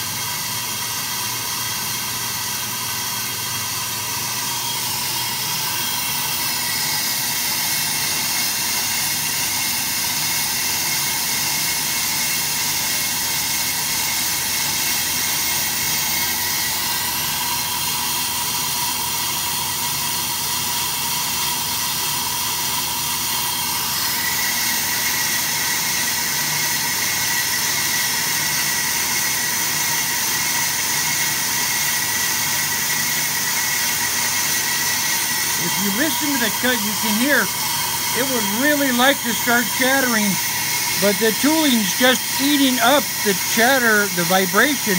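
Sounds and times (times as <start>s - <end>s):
lathe humming: 0.1s - 44.9s
lathe bits cutting hiss: 3.8s - 19.2s, 22.1s - 44.9s.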